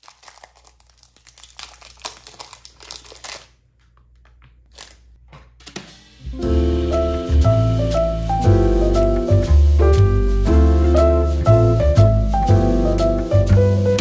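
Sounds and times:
wrapper crinkling and tearing: 0.0s - 5.2s
music: 6.0s - 14.0s.

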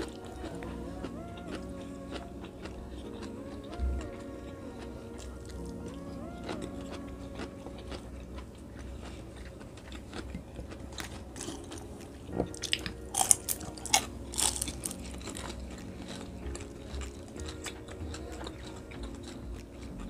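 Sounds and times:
chewing crisp food: 0.0s - 20.0s.

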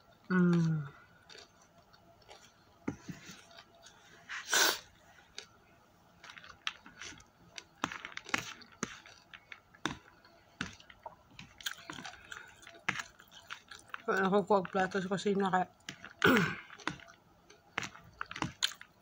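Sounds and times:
chewing: 0.3s - 4.1s, 6.2s - 15.0s, 15.8s - 19.0s
short loud breathy hiss: 4.4s - 4.8s.

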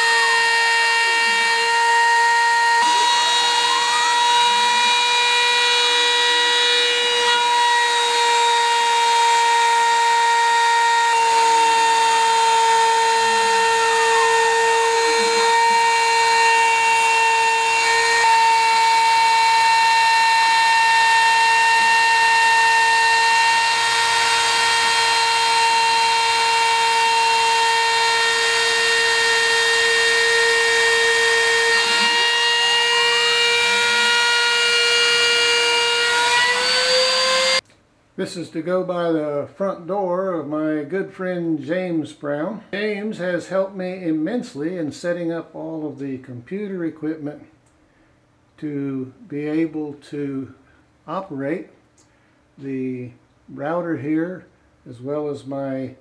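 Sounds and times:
router bit cutting wood: 0.0s - 37.6s
router motor high-pitched whine: 0.0s - 37.6s.

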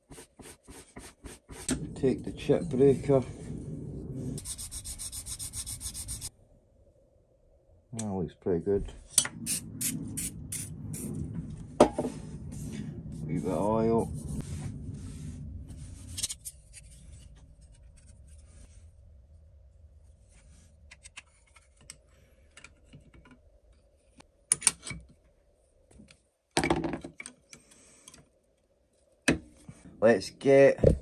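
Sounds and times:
cloth rubbing on steel: 0.0s - 6.3s, 9.3s - 17.1s.

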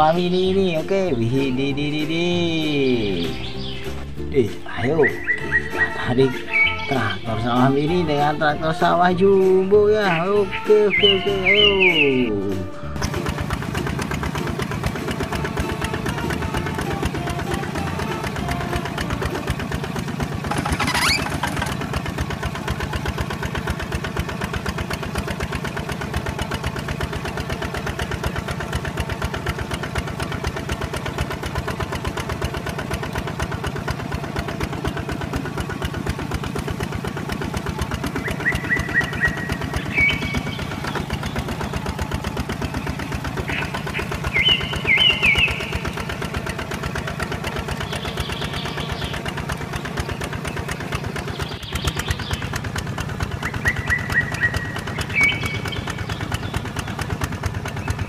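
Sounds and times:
toy tractor motor puttering: 13.0s - 27.0s.

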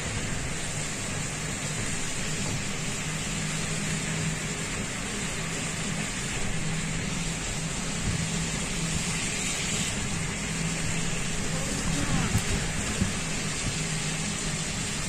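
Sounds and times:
vehicle low hum: 0.0s - 15.0s
tyres rushing on wet road: 4.6s - 15.0s.

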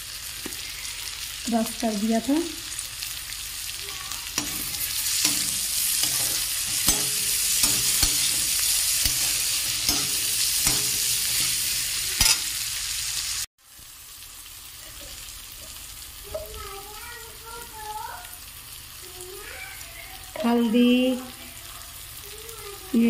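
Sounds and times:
vegetables sizzling in oil: 0.0s - 23.0s
metal spatula scraping pan: 4.4s - 12.6s.

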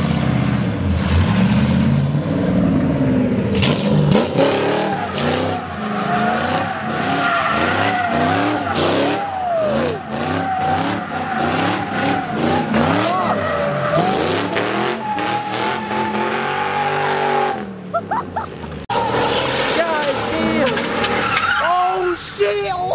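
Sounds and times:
car engine revving: 0.0s - 21.6s
tyres squealing on pavement: 4.5s - 17.6s, 18.9s - 22.9s.

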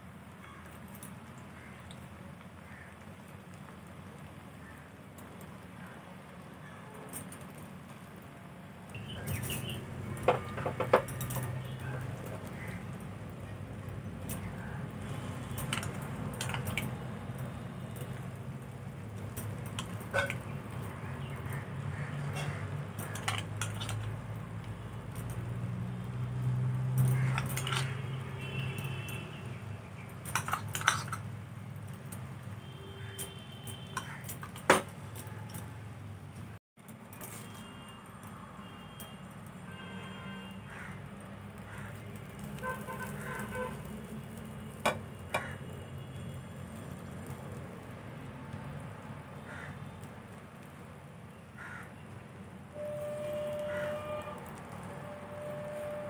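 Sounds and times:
metal spoon scraping frying pan: 15.2s - 16.9s, 19.2s - 20.9s, 22.0s - 24.2s, 27.0s - 28.1s, 30.2s - 31.4s.

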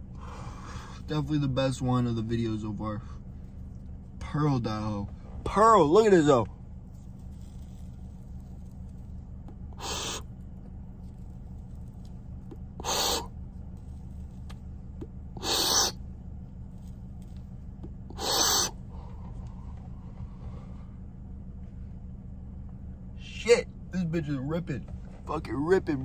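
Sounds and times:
low hum inside a car: 0.0s - 26.0s
person blowing out smoke: 9.7s - 10.3s, 12.8s - 13.3s, 15.4s - 16.0s, 18.1s - 18.8s.

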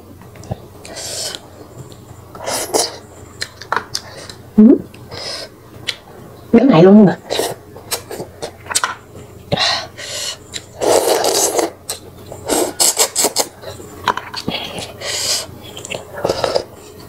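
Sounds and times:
slurping and chewing: 0.4s - 6.0s, 9.8s - 17.0s.

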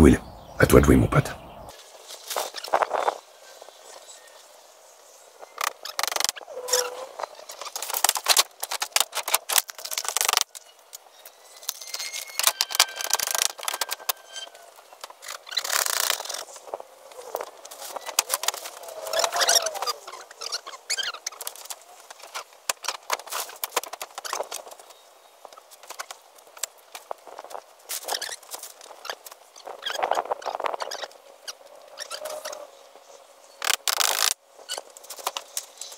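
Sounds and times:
plastic tarp rustling and crackling: 7.1s - 11.0s.

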